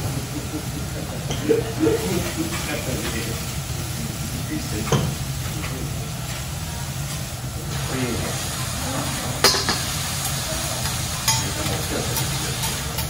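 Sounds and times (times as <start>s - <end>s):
oil sizzling on a griddle: 0.0s - 13.0s
metal utensil clinking on griddle: 9.4s - 9.9s, 10.8s - 13.0s.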